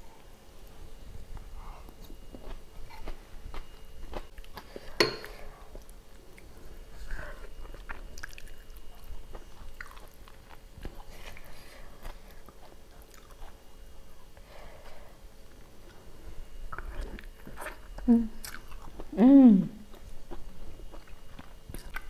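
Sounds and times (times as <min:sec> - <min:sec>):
person chewing: 0:01.8 - 0:14.4, 0:16.7 - 0:19.2, 0:19.8 - 0:22.0.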